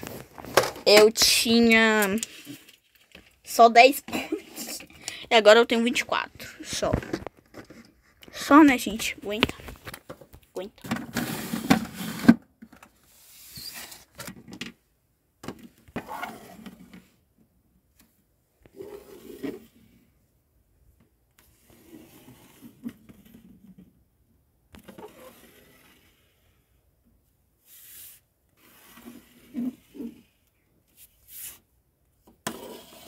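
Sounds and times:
plastic toys scraping and rubbing: 0.0s - 10.2s, 11.0s - 14.2s, 15.9s - 17.2s, 18.6s - 20.1s, 21.4s - 24.0s, 24.8s - 26.8s, 27.6s - 31.7s, 32.3s - 33.0s.

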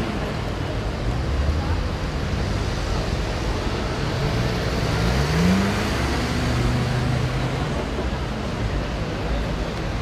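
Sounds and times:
traffic rumble: 0.0s - 10.0s
vehicle engine accelerating: 4.0s - 7.8s.

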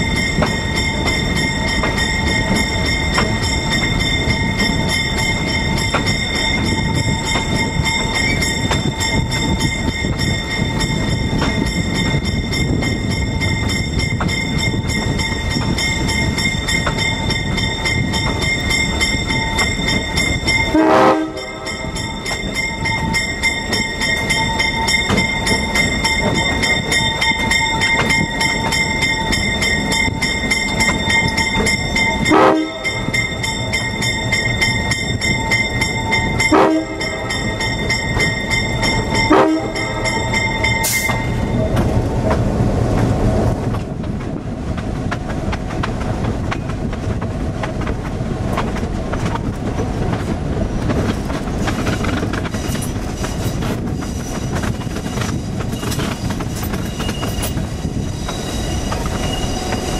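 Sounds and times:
clattering train wheels: 0.0s - 59.9s
train rumbling on rails: 0.0s - 59.9s
locomotive air horn: 20.7s - 21.8s, 32.3s - 33.1s, 36.5s - 37.3s, 39.3s - 40.1s.

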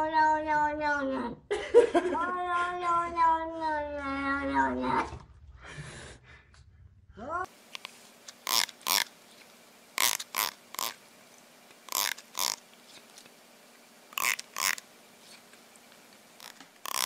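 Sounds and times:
comb teeth strummed: 11.9s - 12.6s, 14.2s - 14.8s, 16.4s - 17.0s.

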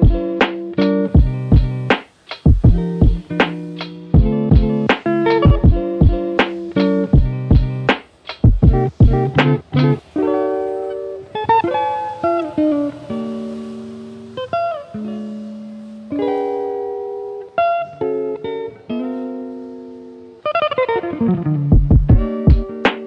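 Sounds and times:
drum beat with deep kick: 0.0s - 10.0s, 21.6s - 23.0s
plucked guitar chords: 0.0s - 23.0s.

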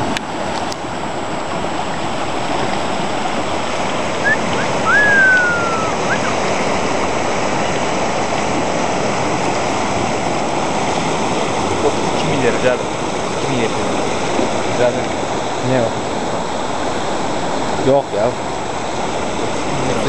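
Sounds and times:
rushing river water: 0.0s - 20.0s
whistle-like tone: 4.2s - 6.4s.

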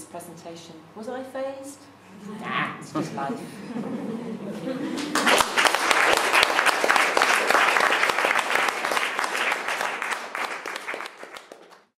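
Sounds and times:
audience applauding: 4.8s - 11.9s.

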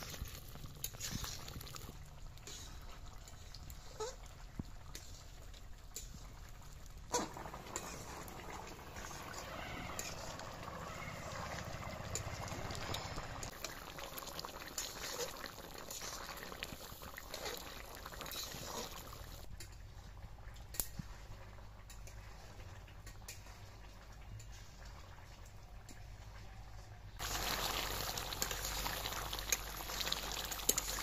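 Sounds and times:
curry bubbling and sizzling: 0.0s - 31.0s
metal spatula scraping pan: 2.4s - 4.2s, 7.1s - 13.5s, 17.2s - 19.3s.

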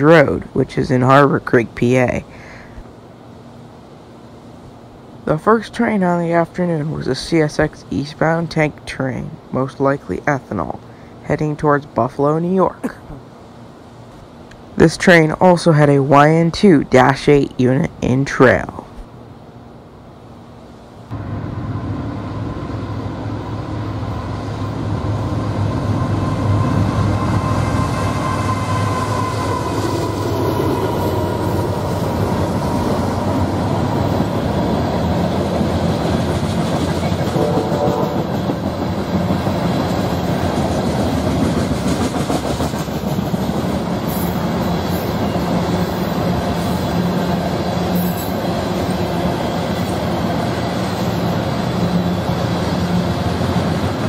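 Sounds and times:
freight train wheels rumbling: 21.1s - 54.0s.

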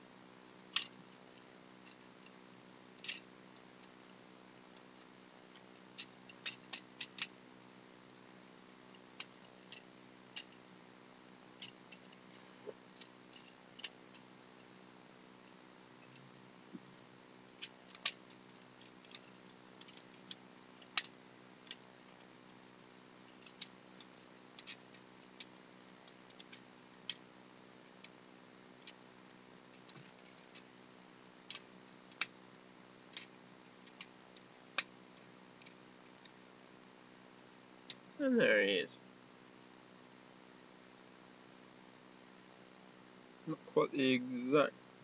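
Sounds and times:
faint low hum: 0.0s - 45.0s
plastic toy parts clicking: 3.0s - 3.2s, 6.0s - 7.3s, 17.6s - 18.4s, 19.0s - 22.3s, 23.4s - 25.5s, 26.1s - 27.2s.

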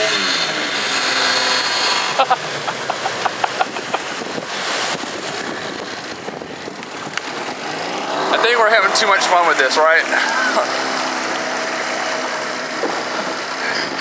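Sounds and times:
outboard motor running: 0.0s - 14.0s
water noise: 0.0s - 14.0s
wind noise: 2.2s - 8.4s.

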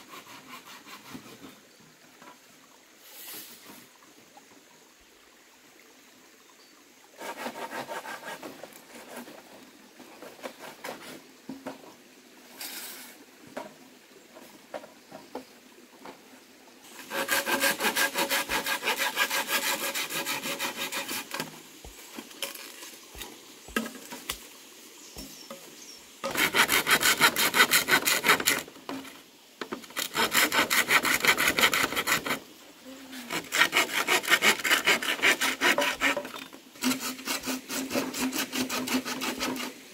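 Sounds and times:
hand saw cutting bamboo: 0.0s - 1.6s, 7.2s - 9.4s, 10.2s - 11.2s, 16.9s - 24.4s, 26.2s - 32.5s, 33.2s - 39.9s.

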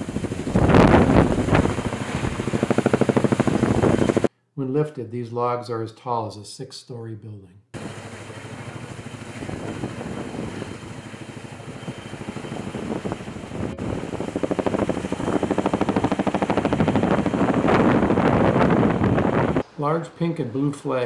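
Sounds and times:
helicopter rotor blades beating: 0.0s - 4.3s, 7.8s - 19.6s.

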